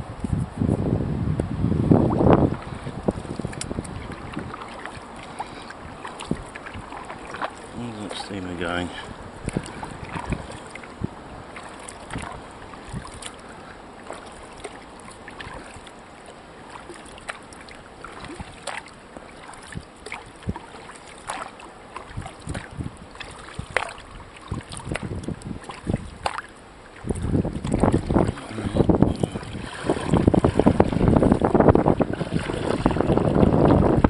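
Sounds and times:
wind buffeting microphone: 0.0s - 13.8s, 22.0s - 34.0s
water splashes and drips: 2.1s - 34.0s.

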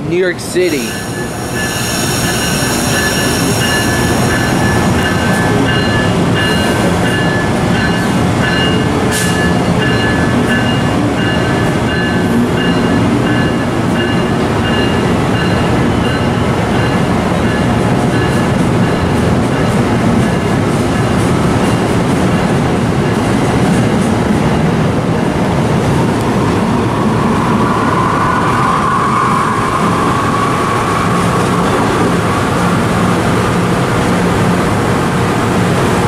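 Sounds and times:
train wheels rumbling on rail: 0.0s - 36.0s
high-pitched whining tones: 0.6s - 8.8s, 26.2s - 32.8s.

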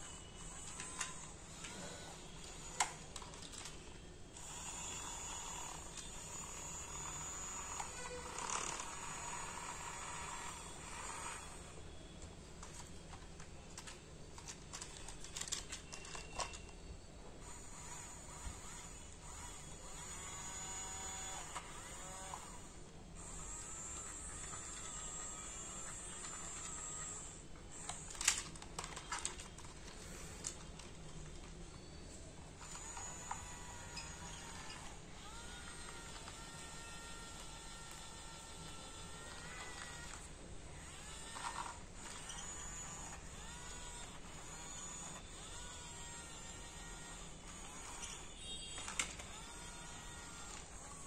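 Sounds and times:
toy electric motor whirring: 0.0s - 12.0s, 12.6s - 16.8s, 17.4s - 31.4s, 32.6s - 51.0s
plastic clicks and clatter: 2.5s - 4.0s, 12.2s - 16.8s, 23.9s - 31.6s, 32.6s - 40.3s, 41.0s - 51.0s.

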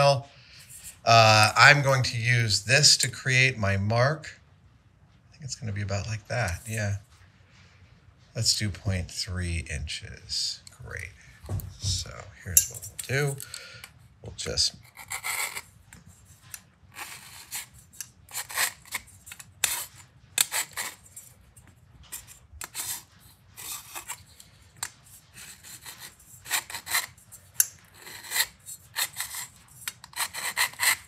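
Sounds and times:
metal scratching on metal: 12.4s - 13.8s, 14.4s - 31.0s.

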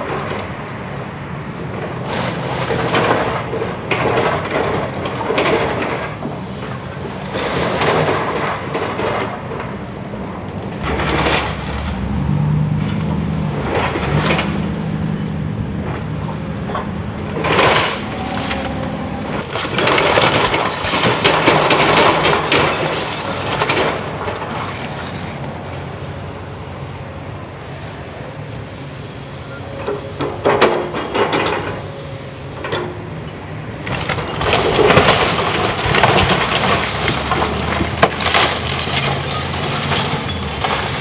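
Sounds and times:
excavator diesel engine humming: 0.0s - 22.9s, 23.5s - 41.0s
debris falling: 2.0s - 15.2s, 15.8s - 25.4s, 33.8s - 41.0s
timber cracking and splintering: 2.1s - 14.8s, 17.4s - 25.1s, 33.9s - 41.0s.

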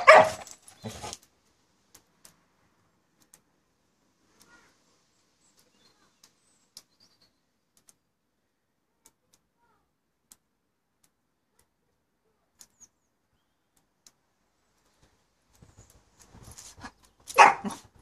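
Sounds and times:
faint sharp clicks: 0.7s - 8.2s, 8.8s - 17.4s
faint high chirps: 4.4s - 8.1s.

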